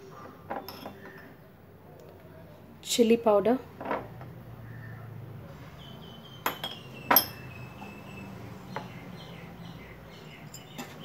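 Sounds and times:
utensil clinking against glass bowl: 0.5s - 1.3s, 6.4s - 7.5s.

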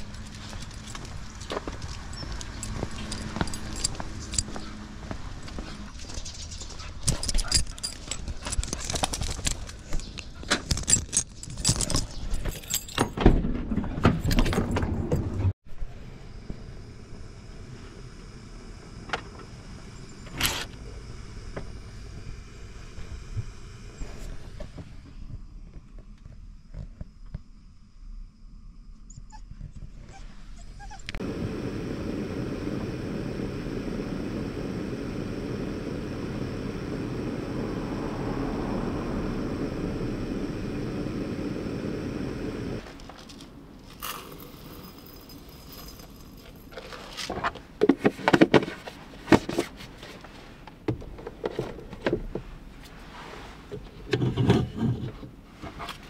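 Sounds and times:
gas stove burner rushing: 31.1s - 42.9s.

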